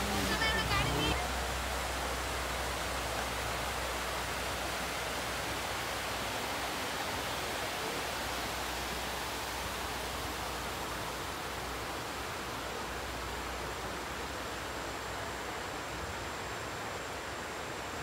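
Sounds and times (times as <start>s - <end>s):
water rushing down a spillway: 0.0s - 18.0s.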